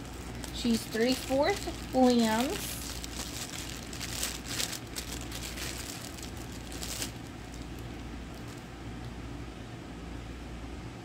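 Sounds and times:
plastic sleeve crinkling: 0.0 - 8.7.

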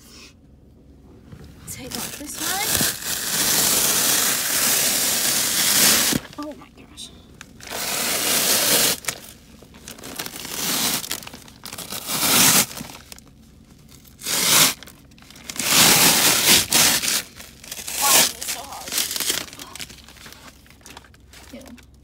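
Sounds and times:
plastic sheet crinkling and tearing: 1.8 - 6.4, 7.6 - 13.2, 14.2 - 21.9.

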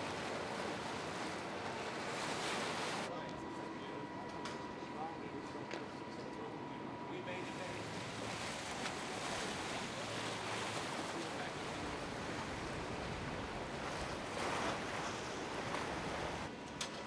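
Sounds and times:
water washing: 7.4 - 16.5.

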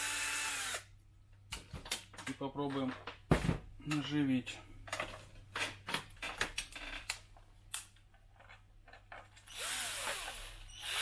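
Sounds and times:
cordless drill motor: 0.0 - 0.8, 9.5 - 11.0.

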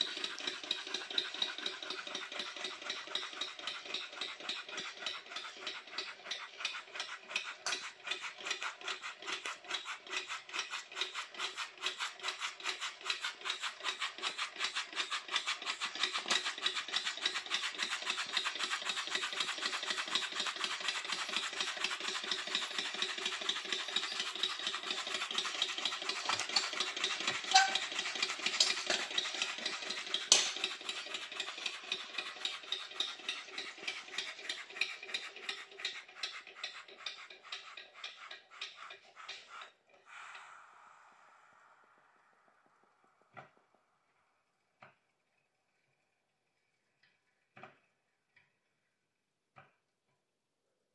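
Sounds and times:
model steam engine clattering: 0.0 - 40.2.

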